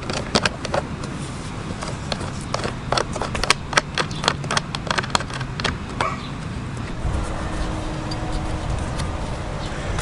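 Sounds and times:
plastic parts clicking and tapping: 0.0s - 1.1s, 1.8s - 6.0s
low background rumble: 0.0s - 10.0s.

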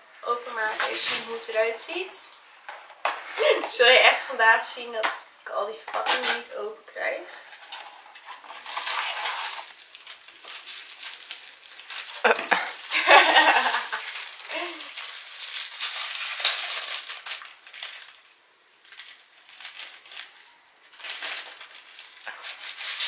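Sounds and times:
wrapper rustling and crinkling: 0.3s - 1.8s, 7.4s - 23.0s
cardboard box pulled apart: 8.6s - 9.7s.

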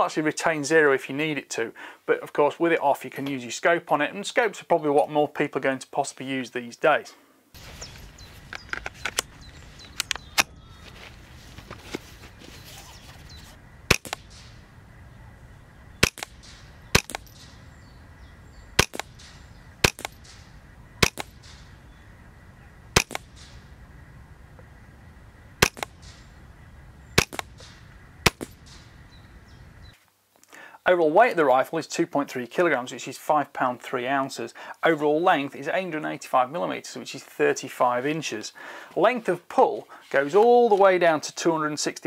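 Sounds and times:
light rifle clicks: 8.5s - 10.5s, 13.9s - 14.6s, 16.0s - 17.6s, 18.8s - 21.7s, 23.0s - 23.6s, 25.6s - 26.3s, 27.2s - 28.9s
suppressed rifle shots: 13.9s - 14.7s, 16.0s - 17.8s, 18.8s - 22.0s, 22.9s - 23.8s, 25.6s - 26.4s, 27.2s - 29.0s.

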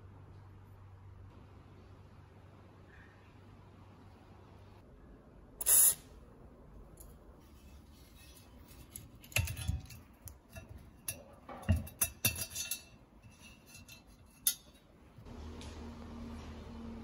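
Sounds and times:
metal parts clinking on cast iron: 8.1s - 14.9s.

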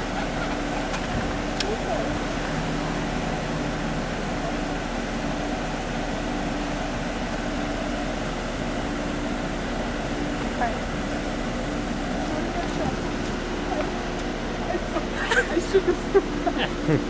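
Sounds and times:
idling cars humming: 0.0s - 17.0s.

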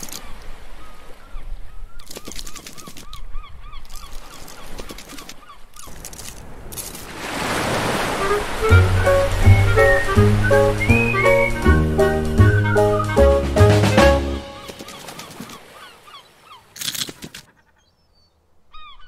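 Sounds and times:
surf-like whoosh: 7.1s - 14.6s
music: 8.2s - 14.6s.

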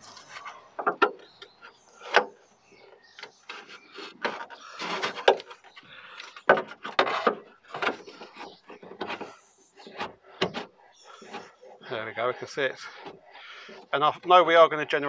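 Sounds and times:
short rubbing scrapes: 3.4s - 14.0s.

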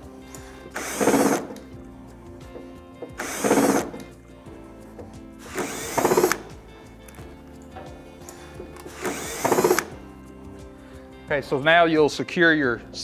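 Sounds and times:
cordless drills spinning screws: 0.7s - 1.7s, 3.1s - 4.1s, 5.4s - 6.5s, 8.8s - 10.0s.

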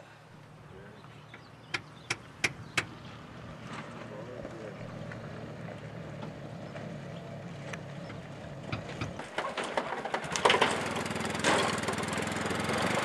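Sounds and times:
atv engine running: 0.4s - 13.0s
metallic rattles and clanks: 8.6s - 12.2s.

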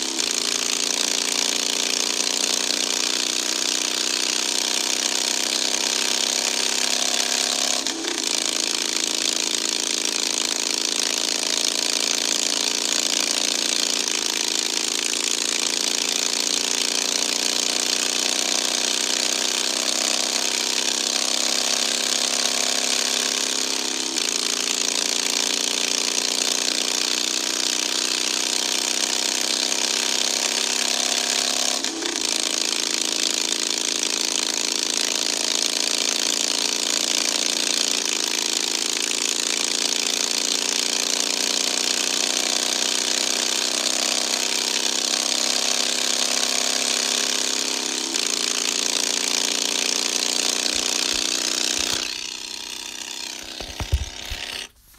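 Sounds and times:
motorcycle engine running: 0.0s - 54.9s.

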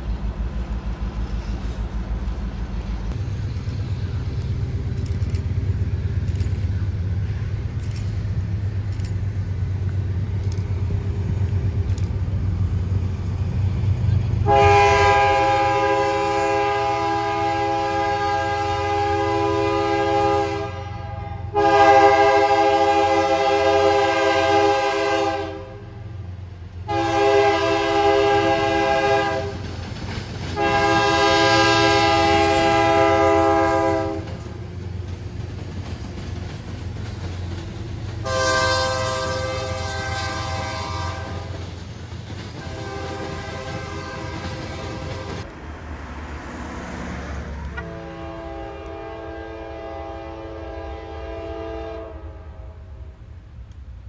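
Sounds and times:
train rolling rumble: 0.0s - 54.0s
locomotive air horn blasts: 14.4s - 26.2s, 26.8s - 29.6s, 30.6s - 34.6s, 38.2s - 41.5s, 42.6s - 45.5s, 47.7s - 53.1s.

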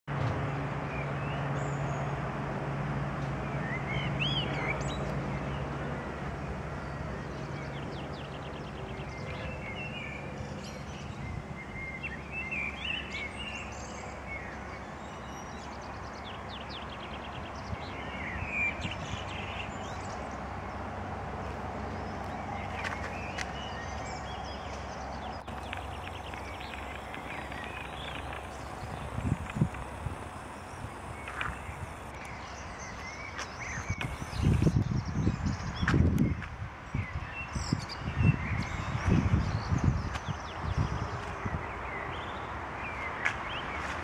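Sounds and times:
light plane engine drone: 0.1s - 35.8s
birds chirping: 22.0s - 35.6s.

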